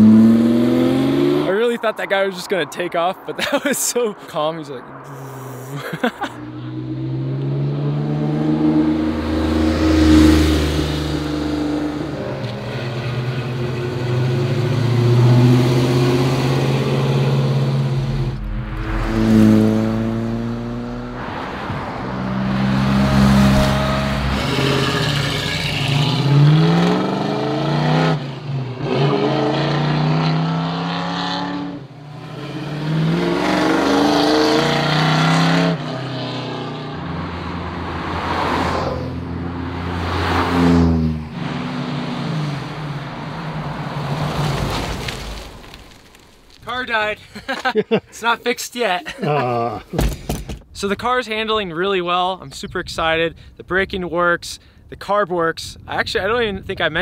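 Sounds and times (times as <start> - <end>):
car engine: 0.0 - 1.8, 4.2 - 46.9
car engines accelerating: 0.0 - 1.8, 4.8 - 45.8.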